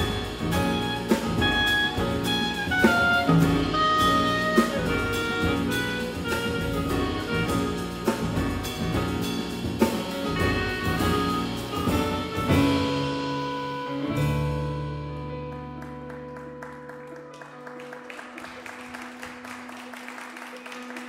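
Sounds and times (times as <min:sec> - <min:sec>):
drum kit with cymbals: 0:00.0 - 0:15.1
clarinet lead line: 0:00.0 - 0:15.6
bass: 0:00.0 - 0:19.8
piano: 0:00.0 - 0:21.0.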